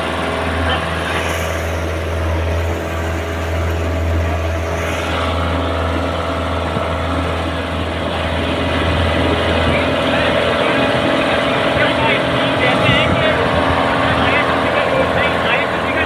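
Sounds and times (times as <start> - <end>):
truck engine running: 0.0 - 16.0
water rushing: 0.0 - 16.0.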